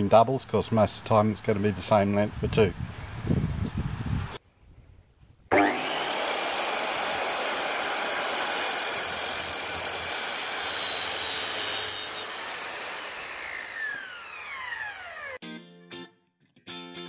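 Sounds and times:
circular saw cutting metal: 5.5s - 15.4s
saw motor winding down: 5.5s - 15.4s.

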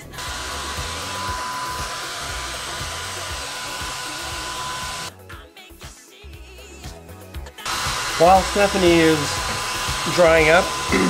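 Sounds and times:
hair dryer blowing: 0.0s - 5.1s, 7.6s - 11.0s.

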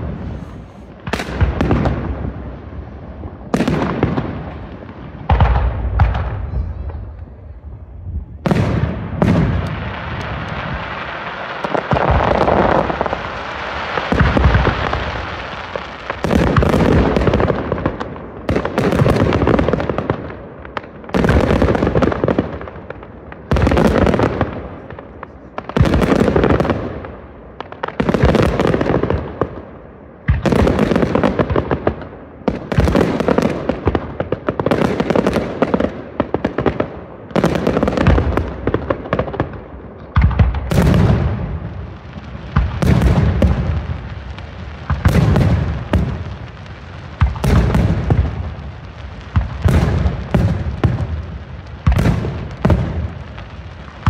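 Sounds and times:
firework bangs with crackle: 0.0s - 54.0s.

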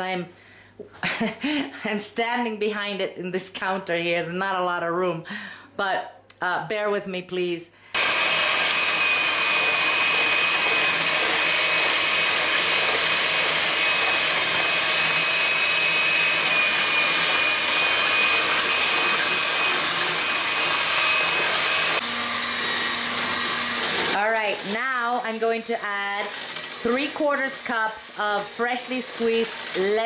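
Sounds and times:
electric hand mixer whining: 8.0s - 30.0s.

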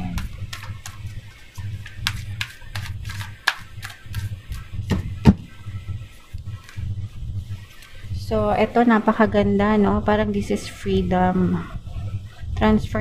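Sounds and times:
cards being shuffled: 1.8s - 4.6s.

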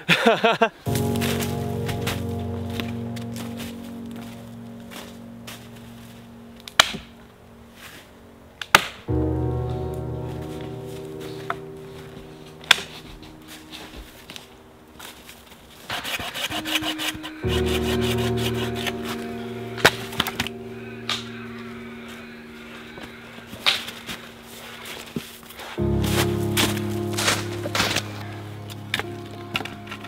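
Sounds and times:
background music: 0.9s - 30.0s
dry branches snapping: 6.6s - 7.2s, 7.8s - 9.1s, 9.7s - 30.0s.

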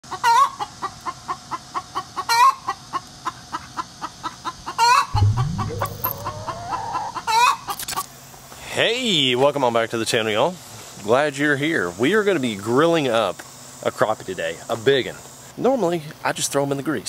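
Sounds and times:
low rising tone: 5.2s - 7.2s.

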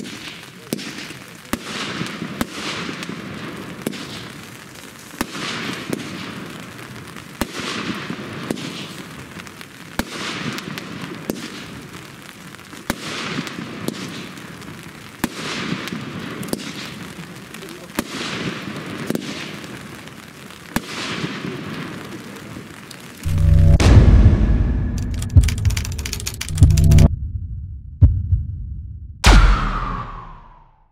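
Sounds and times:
firework shots banging and fizzing: 0.0s - 23.3s.

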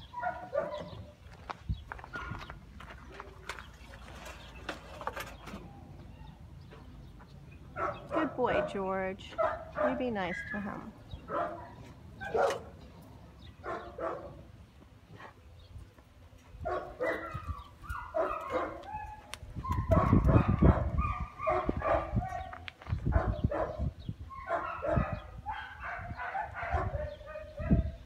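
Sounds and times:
dog barking and whining: 0.1s - 1.0s, 9.4s - 12.7s, 16.6s - 28.0s
low rumbling on microphone: 16.6s - 28.0s.

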